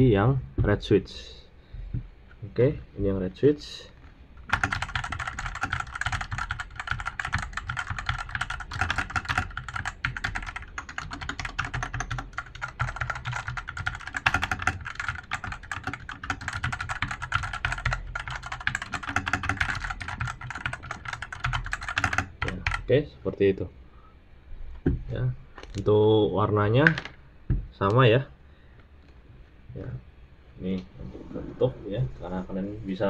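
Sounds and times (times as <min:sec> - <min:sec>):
mechanical keyboard typing: 0:04.4 - 0:22.9.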